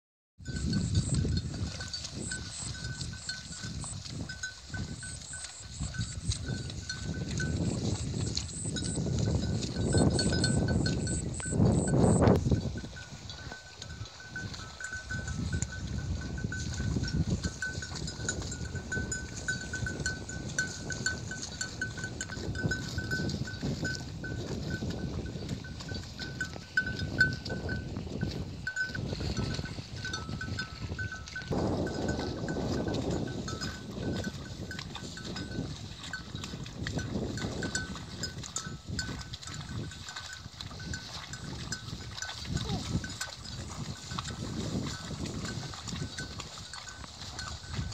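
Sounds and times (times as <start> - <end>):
buffalo cropping grass: 1.0 - 47.9.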